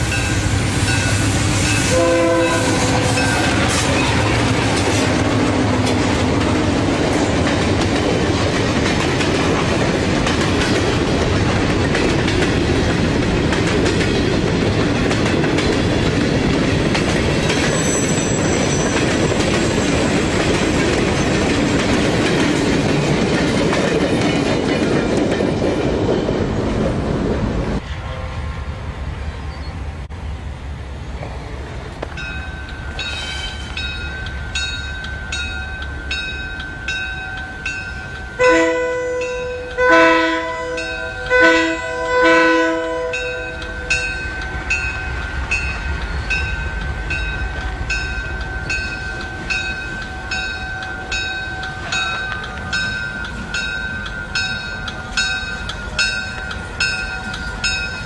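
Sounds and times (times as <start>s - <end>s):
crossing warning bell dinging: 0.0s - 25.6s, 32.0s - 58.0s
locomotive air horn blasts: 1.5s - 5.2s, 38.4s - 43.8s.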